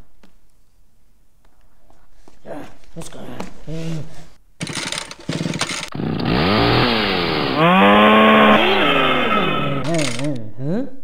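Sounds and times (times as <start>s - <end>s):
rattling buzz: 4.6s - 10.3s.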